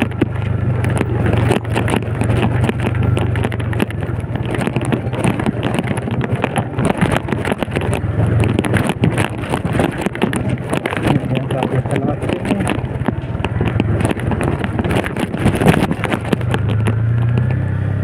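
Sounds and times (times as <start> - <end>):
motorcycle engine running: 0.0 - 18.0
wind noise: 0.0 - 18.0.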